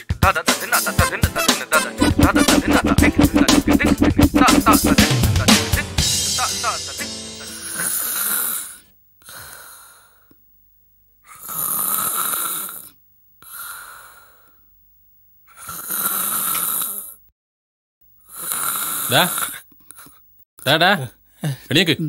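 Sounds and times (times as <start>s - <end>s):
man snoring loudly: 1.0s - 8.8s, 11.4s - 12.9s, 15.6s - 17.2s, 18.2s - 19.6s
soft breath: 13.4s - 14.7s.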